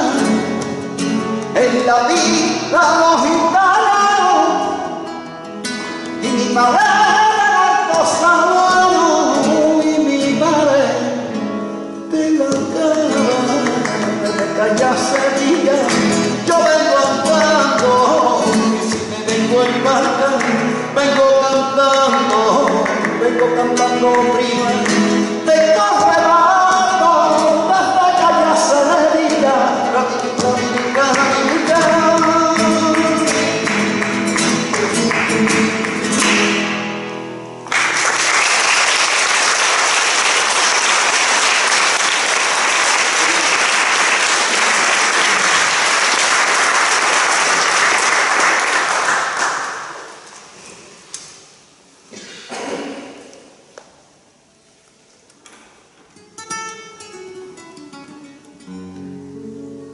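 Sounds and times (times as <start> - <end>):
man singing: 0.0 - 5.3, 5.9 - 36.2
flamenco guitar: 0.0 - 51.0, 55.4 - 59.9
hand-clapping: 13.4 - 21.2, 21.9 - 25.1, 30.4 - 36.8, 37.6 - 50.2
audience applause: 32.9 - 36.6, 37.6 - 50.2.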